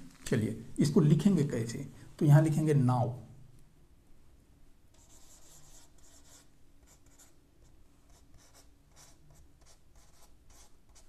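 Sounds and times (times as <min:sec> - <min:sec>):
marker writing on whiteboard: 0:04.9 - 0:07.4, 0:08.1 - 0:11.0.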